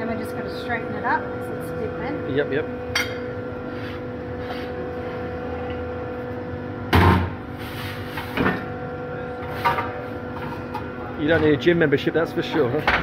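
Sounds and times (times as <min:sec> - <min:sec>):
loud metal clunk: 0:06.9 - 0:07.4.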